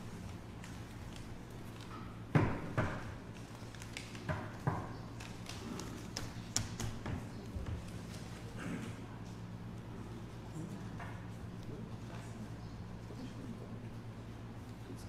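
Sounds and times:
knocks on a table: 2.3s - 3.1s.

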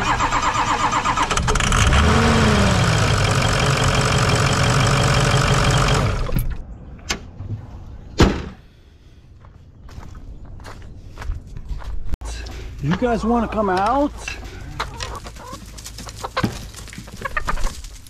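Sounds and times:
diesel engine clattering: 0.0s - 6.5s.

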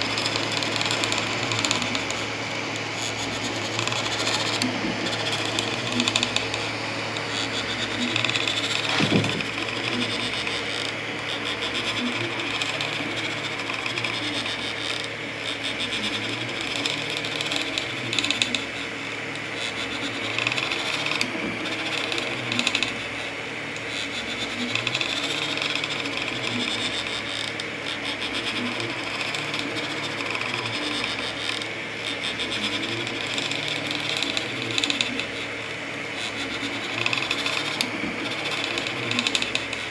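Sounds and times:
printer tick: 0.0s - 10.7s, 15.8s - 18.7s, 36.3s - 39.9s
cooling fans hissing: 0.0s - 39.9s
stepper motors buzzing and whining: 0.0s - 39.9s.

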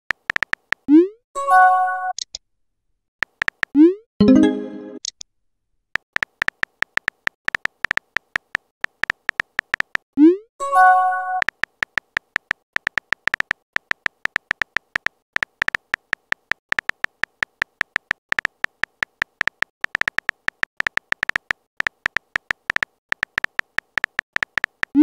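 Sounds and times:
phone keyboard key clicks: 0.1s - 0.8s, 3.2s - 3.7s, 6.0s - 10.0s, 11.4s - 25.0s.

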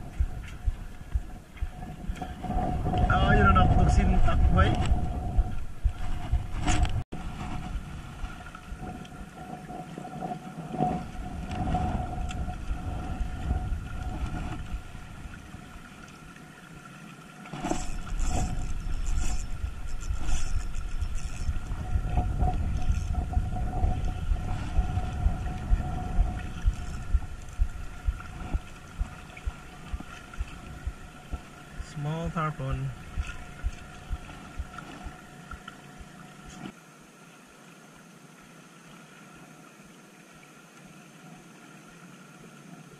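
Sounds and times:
wind rumbling on microphone: 0.0s - 16.4s, 17.5s - 36.8s
faint steady hum: 0.0s - 42.9s
fishing reel clicks: 17.7s - 21.5s.

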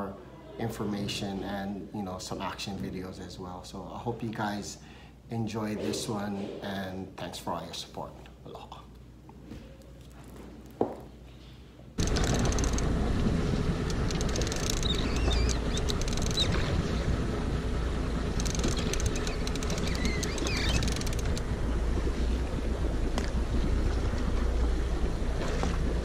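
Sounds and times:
rapid clicking: 12.0s - 17.1s, 18.2s - 21.6s
fishing boat engine running: 12.0s - 26.0s.

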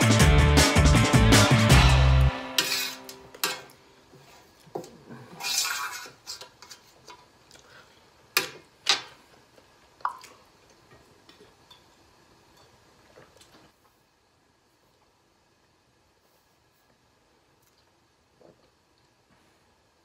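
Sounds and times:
metal fork scraping a tray: 2.6s - 3.6s, 5.4s - 6.8s.

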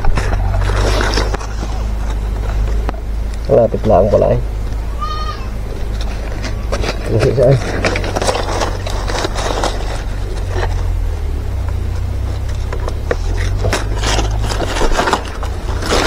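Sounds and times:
wire leads scraping dry leaves: 0.0s - 2.8s, 5.0s - 11.0s, 12.2s - 16.0s
steady low rumble: 0.0s - 16.0s.

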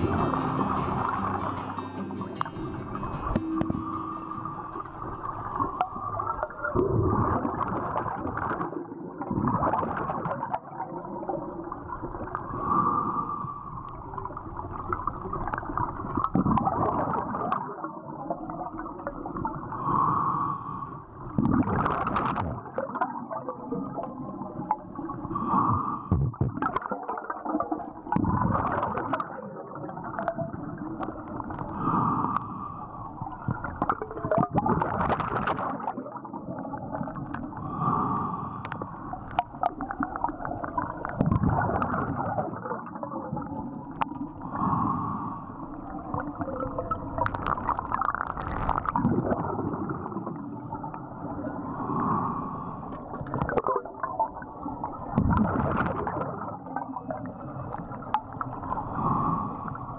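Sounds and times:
diver breathing through regulator: 19.8s - 21.1s, 31.5s - 33.2s, 37.6s - 39.1s, 44.4s - 45.8s, 51.6s - 53.3s, 58.8s - 59.9s
bubbling exhaled air: 25.1s - 59.9s.

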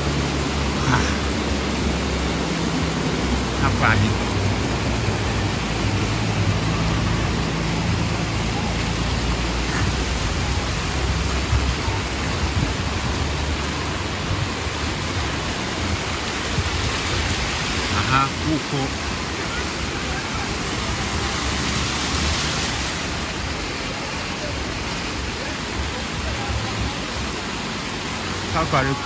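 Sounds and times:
bus engine humming: 0.0s - 16.6s
heavy rain pouring: 0.0s - 29.0s.

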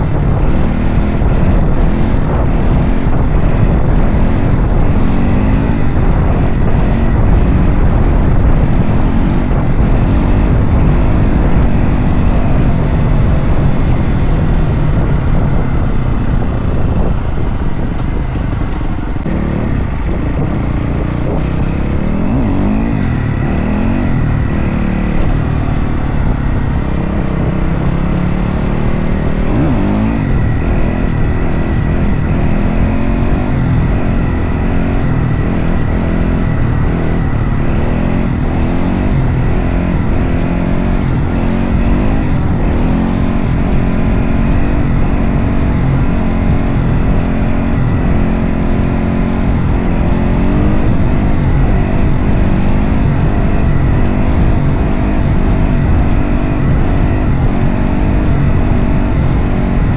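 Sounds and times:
dirt bike engine revving: 0.0s - 59.9s
wind noise on microphone: 0.0s - 59.9s.

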